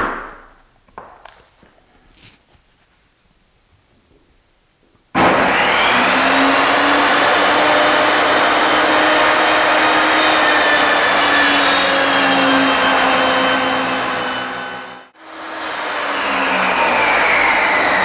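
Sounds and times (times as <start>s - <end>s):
saw ripping wood: 5.2s - 18.0s
table saw motor whining: 5.2s - 18.0s.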